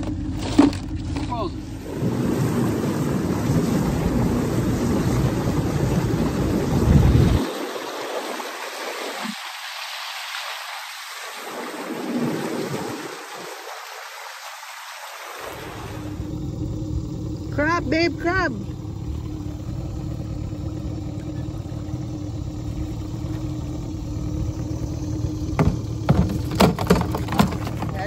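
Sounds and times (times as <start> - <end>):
wind buffeting microphone: 1.7 - 7.6.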